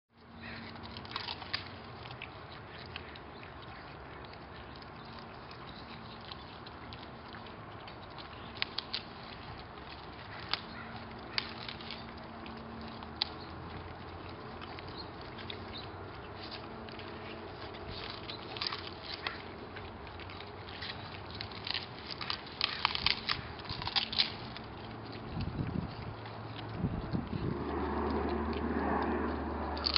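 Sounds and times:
dogs crunching vegetables: 0.2 - 29.9.

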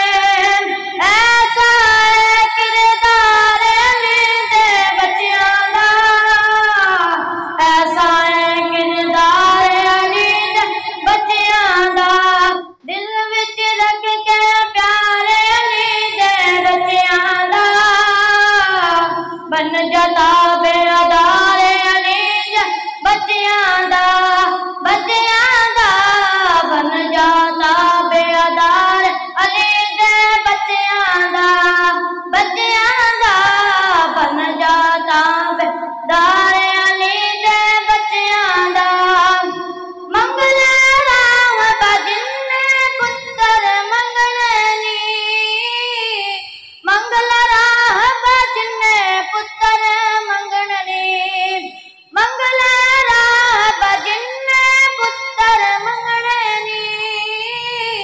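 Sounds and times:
boy singing into microphone: 0.0 - 58.0
singer breathing: 46.4 - 46.9, 51.7 - 52.2.

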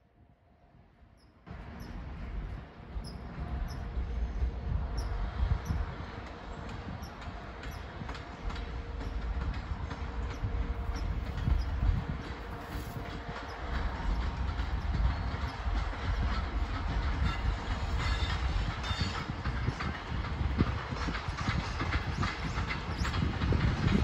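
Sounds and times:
freight train rumbling: 0.6 - 24.0
wheels clicking over rail joints: 5.2 - 24.0.

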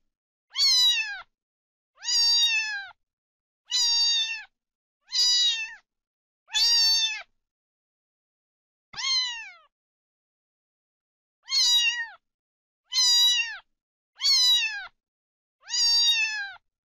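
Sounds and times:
cat meowing: 0.5 - 1.3, 2.0 - 3.0, 3.7 - 5.8, 6.5 - 7.3, 9.0 - 9.7, 11.4 - 12.2, 12.9 - 13.6, 14.2 - 15.0, 15.6 - 16.6.

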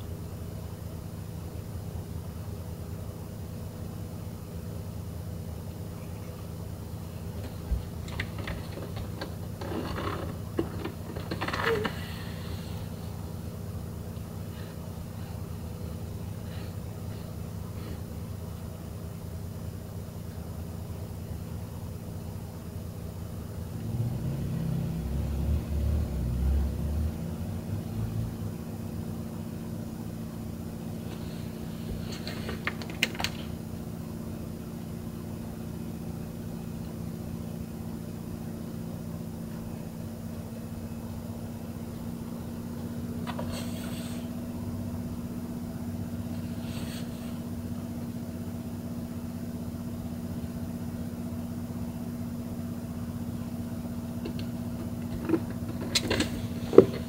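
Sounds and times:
low mechanical hum: 0.0 - 57.0
brief hisses: 43.4 - 44.3.

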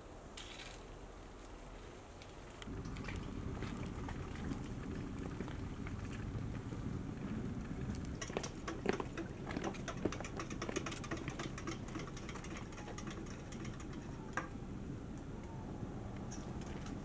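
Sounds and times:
wood fire crackling: 2.4 - 15.3.

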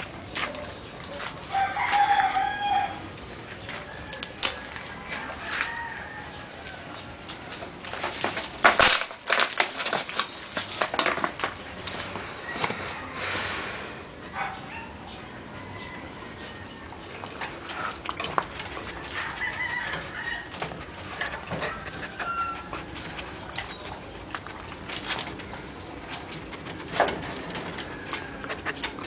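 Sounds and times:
dog eating from metal bowl: 17.1 - 29.0.

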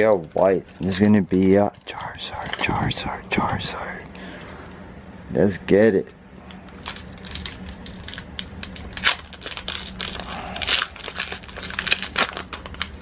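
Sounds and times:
foil wrapper tearing and crinkling: 0.0 - 2.9, 6.5 - 13.0.

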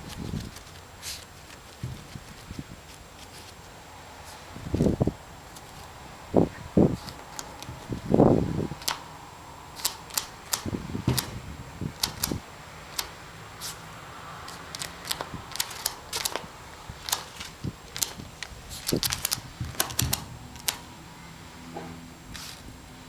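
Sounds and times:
dog paws scraping soil: 0.0 - 5.9
dull thumps: 1.5 - 2.8
sharp irregular clicks: 8.8 - 9.0, 9.8 - 11.3, 12.0 - 13.2, 14.7 - 20.9.

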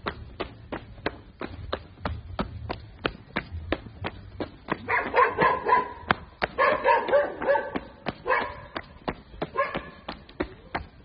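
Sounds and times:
footsteps on gravel: 0.0 - 11.0
dog yapping: 4.9 - 6.0, 6.6 - 8.7, 9.6 - 10.0.

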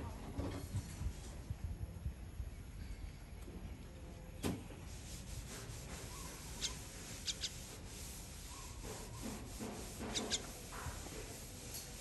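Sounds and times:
bird short high squeaks: 10.1 - 10.5.

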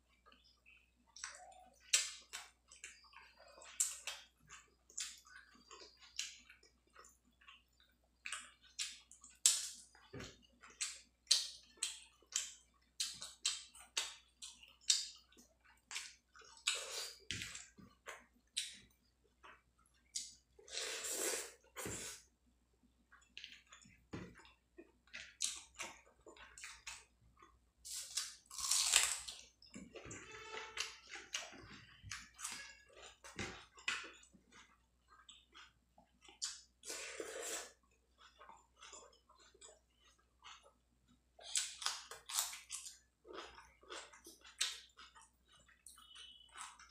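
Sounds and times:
chewing food: 0.0 - 46.9.

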